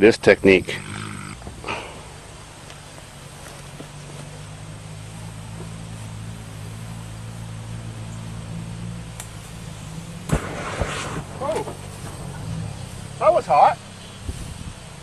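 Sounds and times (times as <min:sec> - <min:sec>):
low engine drone: 0:00.6 - 0:15.0.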